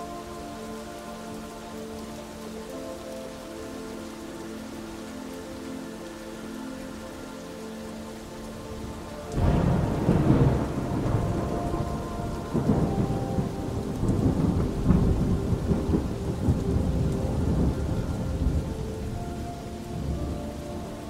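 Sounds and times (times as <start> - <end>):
steady rain: 0.0 - 21.0
thunderclap and rumble: 9.4 - 19.4.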